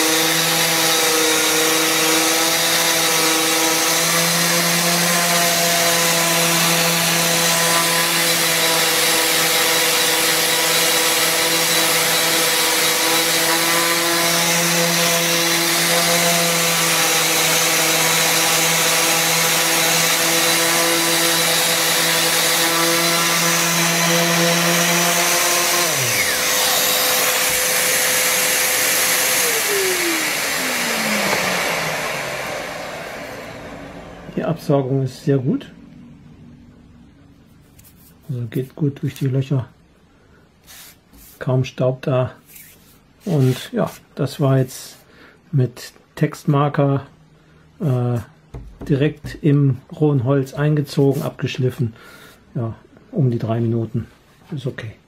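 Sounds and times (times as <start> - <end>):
orbital sander on wood: 0.0 - 34.6.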